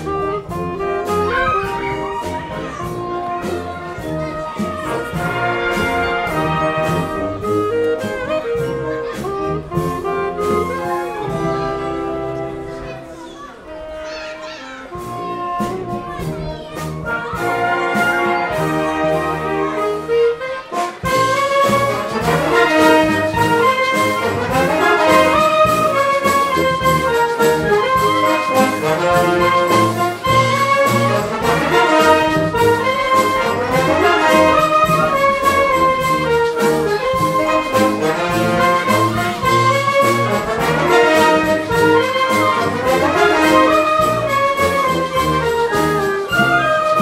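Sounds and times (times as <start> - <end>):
wind band playing live: 0.0 - 47.0
steady percussion beat: 21.1 - 47.0.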